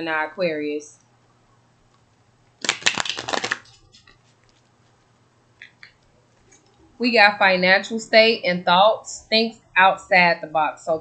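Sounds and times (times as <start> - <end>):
cards riffle shuffled: 2.6 - 4.7.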